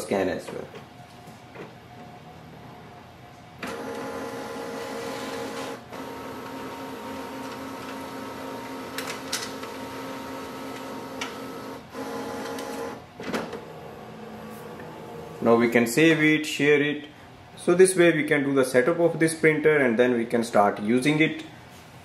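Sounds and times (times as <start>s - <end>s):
scanner motor whine: 3.6s - 13.0s.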